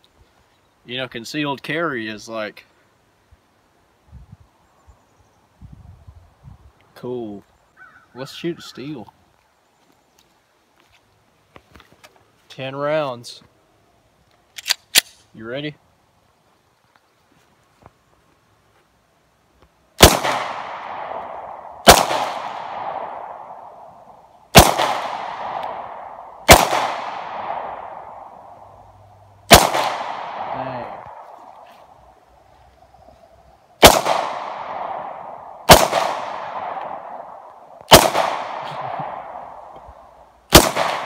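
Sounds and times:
pistol shots with echo: 0:20.0 - 0:23.9, 0:24.5 - 0:28.6, 0:29.5 - 0:31.2, 0:33.8 - 0:39.7, 0:40.5 - 0:41.0.

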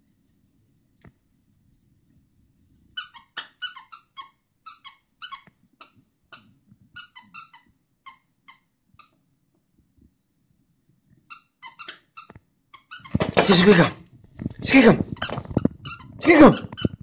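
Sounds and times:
squeaky toy squeaking: 0:03.0 - 0:09.2, 0:11.3 - 0:14.0, 0:15.1 - 0:17.0.

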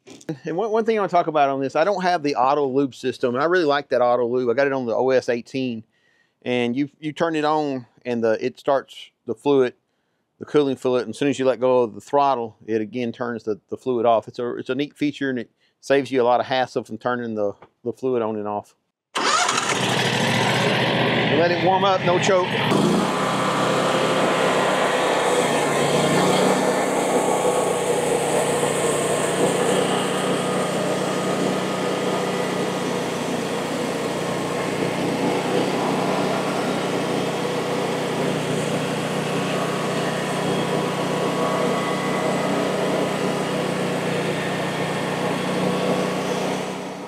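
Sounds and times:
small gasoline engine revving: 0:19.2 - 0:21.7, 0:22.4 - 0:47.0
saw cutting through log: 0:22.7 - 0:47.0.

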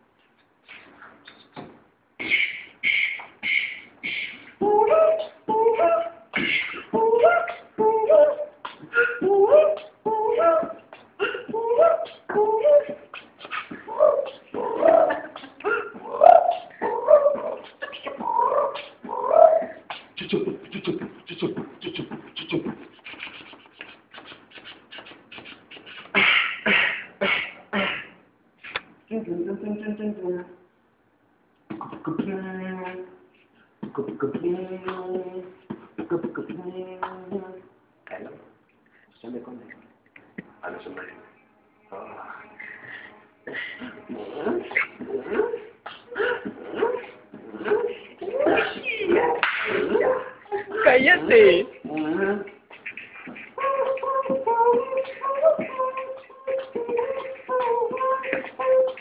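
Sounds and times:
person beatboxing: 0:00.6 - 0:29.7, 0:31.7 - 0:33.2, 0:33.8 - 0:38.4, 0:43.4 - 0:59.0
hummed melody: 0:04.6 - 0:19.7, 0:52.9 - 0:59.0.

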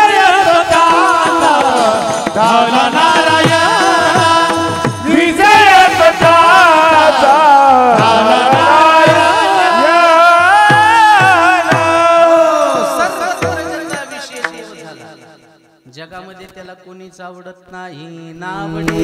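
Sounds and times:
men singing in chorus: 0:00.0 - 0:15.4, 0:17.8 - 0:19.0
hand drum beat: 0:00.6 - 0:06.5, 0:07.9 - 0:12.2, 0:13.0 - 0:15.1.

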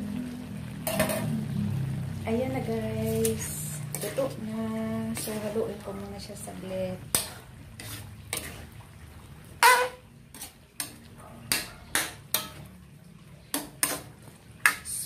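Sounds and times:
ladle clanking on wok: 0:00.8 - 0:01.3, 0:03.1 - 0:05.7, 0:07.0 - 0:08.7, 0:09.5 - 0:12.7, 0:13.5 - 0:15.0
metal ladle scraping a wok: 0:02.9 - 0:05.8, 0:07.0 - 0:08.8, 0:09.5 - 0:12.7, 0:13.5 - 0:15.0.

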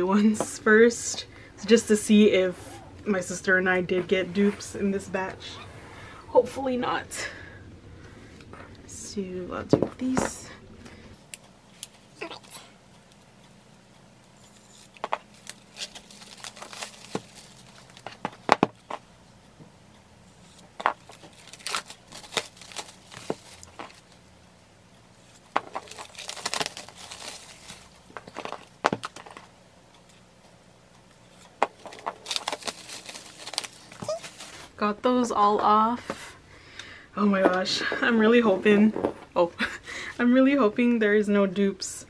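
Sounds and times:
plastic shrink wrap crinkling: 0:14.4 - 0:19.0, 0:20.5 - 0:24.3, 0:25.2 - 0:29.5, 0:31.3 - 0:34.7.

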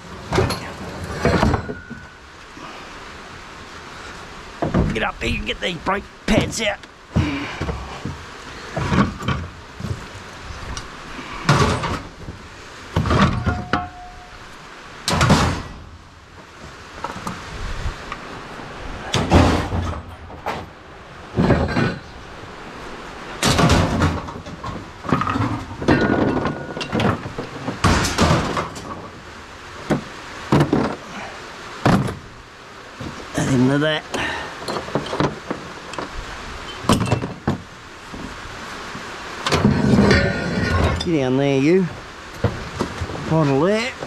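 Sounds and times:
scrap steel parts clanking: 0:00.3 - 0:02.2, 0:10.7 - 0:12.3, 0:13.0 - 0:14.5, 0:21.4 - 0:22.2, 0:23.4 - 0:29.1, 0:34.2 - 0:37.4, 0:39.4 - 0:41.2.

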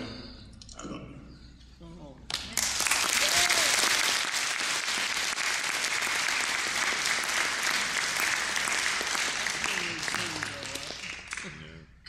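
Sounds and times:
congregation clapping: 0:02.3 - 0:11.7.

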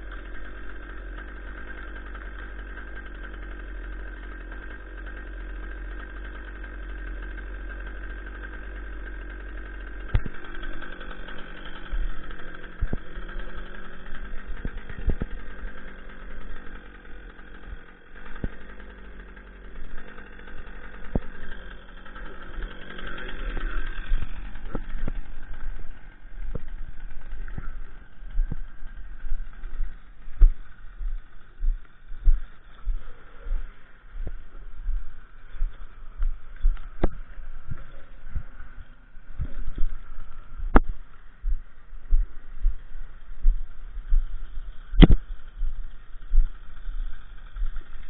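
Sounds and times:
small engine idling: 0:00.0 - 0:48.0
footsteps through brush and snow: 0:24.9 - 0:47.8.

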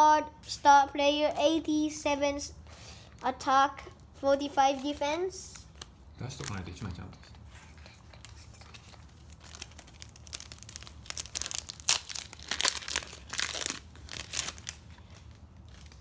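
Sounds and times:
foil packet tearing and crinkling: 0:05.6 - 0:07.0, 0:08.1 - 0:16.0.

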